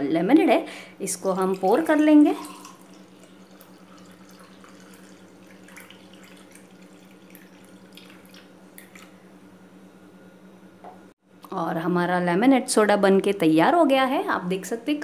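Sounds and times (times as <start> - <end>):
bubbles crackling: 1.1 - 9.2
soda pouring into a glass: 1.3 - 9.2.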